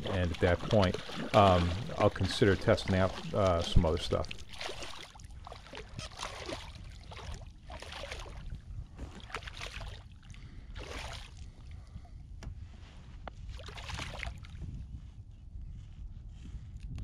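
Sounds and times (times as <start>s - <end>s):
shallow water splashing: 0.0s - 11.5s, 13.5s - 14.6s.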